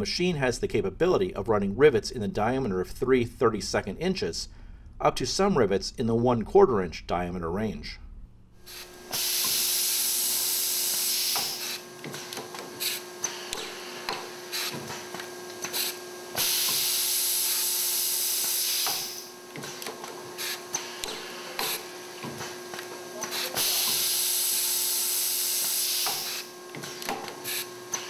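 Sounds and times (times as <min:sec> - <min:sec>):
faint steady hum: 0:00.0 - 0:09.1
compressed air hissing: 0:08.6 - 0:11.8, 0:12.7 - 0:14.9, 0:15.7 - 0:19.3, 0:23.2 - 0:26.5, 0:27.4 - 0:28.0.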